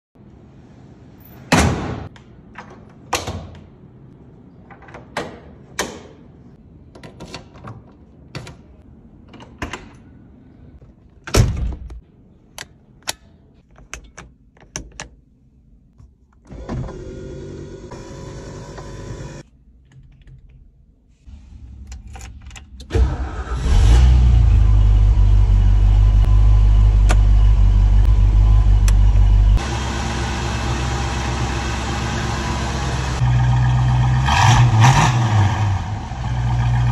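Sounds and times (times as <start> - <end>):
metal latch clicks and knocks: 12.6 - 15.2
power window motor: 16.5 - 19.4
car engine starting and rumbling: 21.3 - 36.9.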